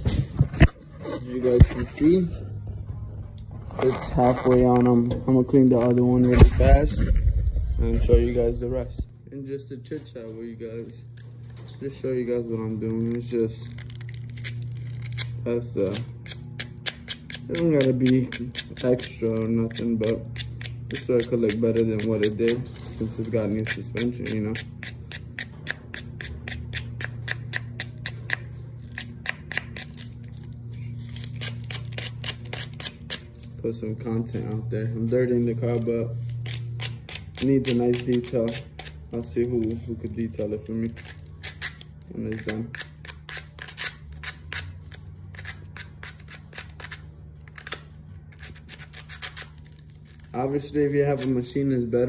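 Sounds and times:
low steady hum: 0.0 - 52.0.

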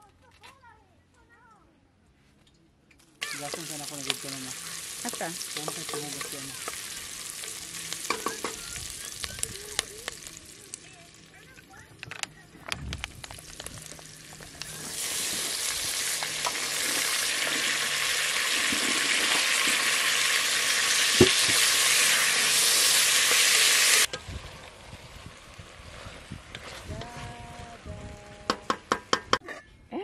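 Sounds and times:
vegetables sizzling in a pot: 3.2 - 27.0.

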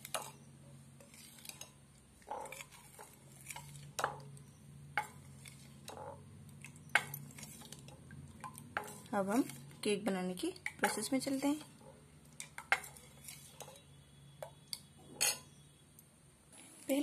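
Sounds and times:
spoon stirring batter in bowl: 0.0 - 15.7.

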